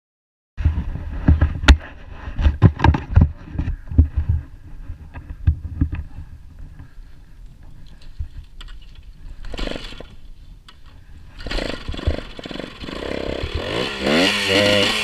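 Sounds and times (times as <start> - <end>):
dirt bike engine rumble: 0.6 - 15.0
thumps and knocks from bumps: 2.4 - 4.4.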